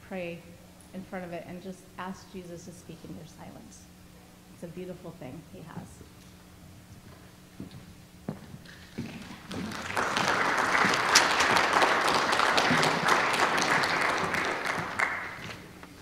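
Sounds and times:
audience applauding: 9.1 - 15.8.

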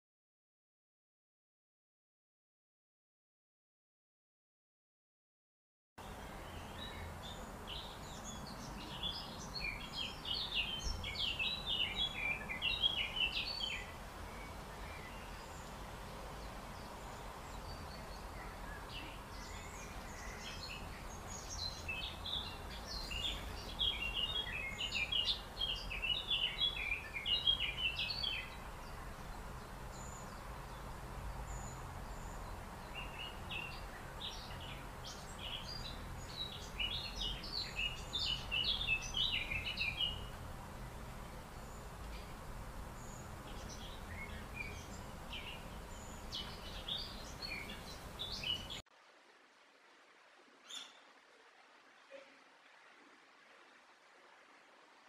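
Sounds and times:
songbirds twittering: 6.0 - 48.8, 50.6 - 51.1.

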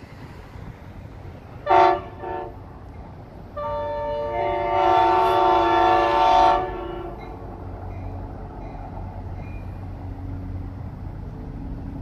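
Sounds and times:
locomotive air horn blasts: 1.6 - 2.6, 3.5 - 7.2.

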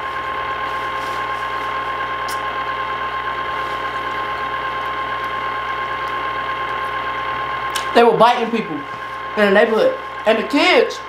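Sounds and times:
machine motor humming: 0.0 - 11.0
person speaking: 7.8 - 11.0.

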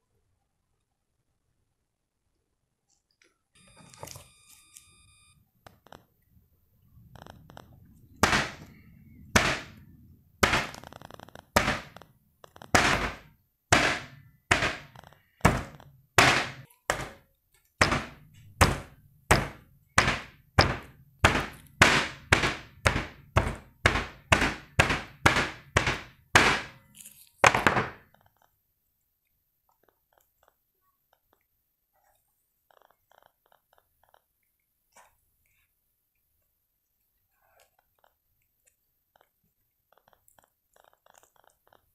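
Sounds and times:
chocolate coating cracking: 7.2 - 13.4, 14.2 - 18.2, 37.8 - 41.9
hammer striking ice cream bar: 8.2 - 9.8, 10.4 - 10.9, 11.6 - 12.0, 12.8 - 17.2, 17.8 - 26.8.

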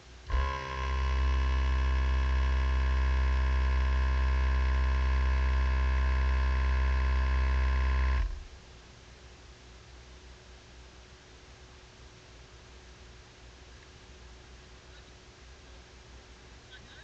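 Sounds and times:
mechanical hum: 0.0 - 17.0.

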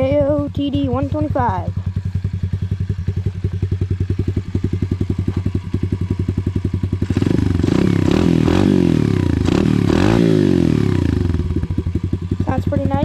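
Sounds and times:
motorbike engine idling and revving: 0.0 - 13.0.

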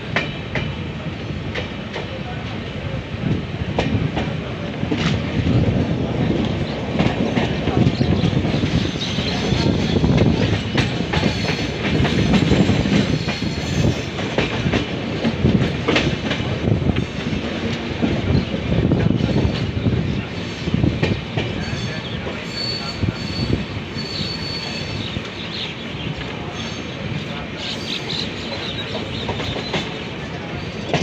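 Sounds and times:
train wheels rumbling on rail: 0.0 - 31.0
high wheel squeal: 21.6 - 25.2.

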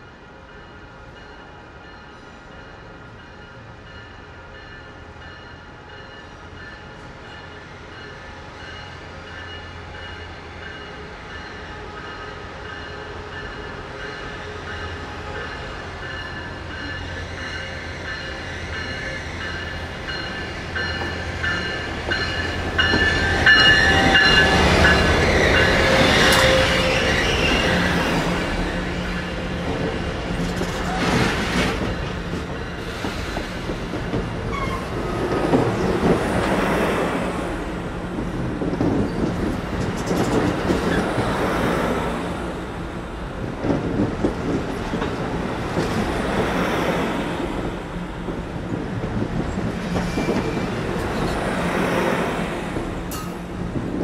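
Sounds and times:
passenger train passing: 0.0 - 54.0
train wheels clicking over rail joints: 38.1 - 41.4, 52.7 - 54.0.

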